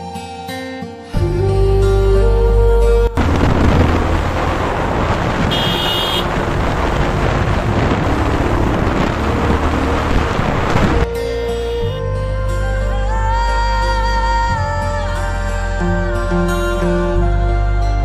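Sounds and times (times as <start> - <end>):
background music: 0.0 - 4.8, 10.9 - 18.0
motorcycle engine running: 3.2 - 11.0
wind rushing over microphone: 3.2 - 11.1.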